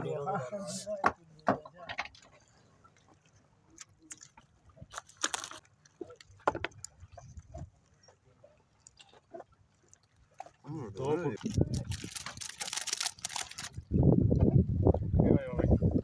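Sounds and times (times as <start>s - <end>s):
knocks and clicks on wooden boat: 1.0s - 2.3s, 6.4s - 6.9s.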